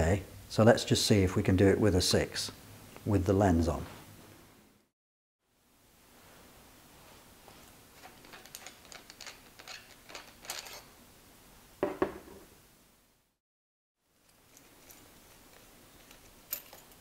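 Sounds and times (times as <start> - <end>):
small clicks and rattles: 7.6 - 10.9, 14.2 - 17.0
ceramic cup knocking on bench: 11.8 - 12.4.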